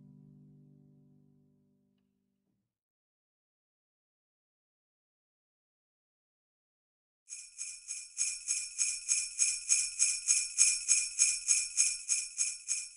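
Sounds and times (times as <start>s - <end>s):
sleigh bells shaken: 7.3s - 12.9s.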